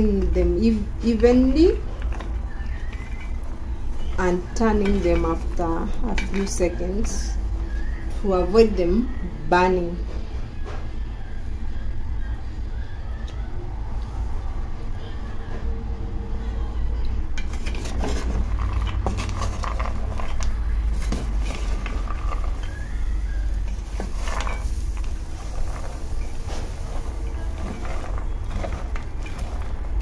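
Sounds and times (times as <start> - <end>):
wooden spoon stirring: 0.0 - 8.8, 17.3 - 30.0
nuts rattling in a pan: 17.4 - 30.0.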